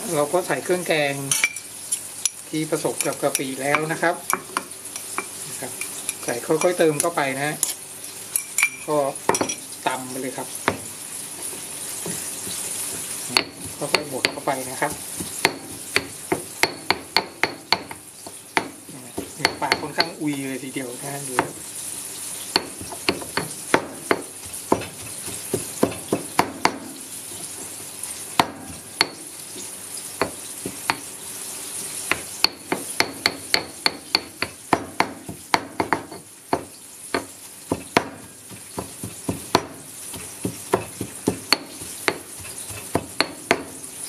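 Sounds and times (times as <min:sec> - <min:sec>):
stone pestle pounding in mortar: 0:10.6 - 0:10.9, 0:12.0 - 0:20.5, 0:21.4 - 0:21.6, 0:22.5 - 0:27.0, 0:28.4 - 0:29.3, 0:30.2 - 0:31.1, 0:32.1 - 0:43.9.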